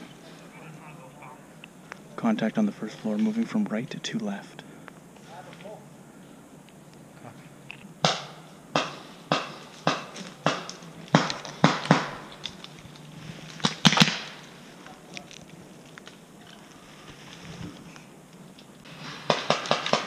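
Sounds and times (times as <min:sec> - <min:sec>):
paintball marker shots: 0:08.0 - 0:12.3.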